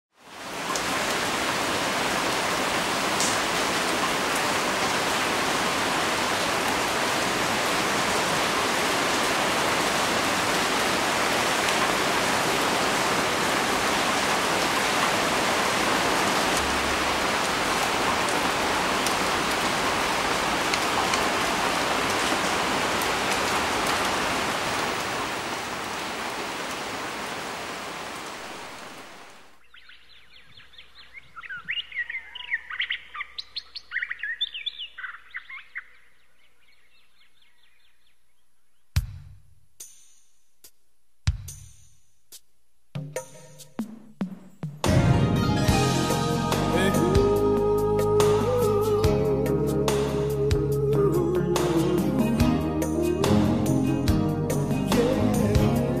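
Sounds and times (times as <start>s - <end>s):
heavy rain falling: 0.2s - 29.6s, 44.9s - 56.0s.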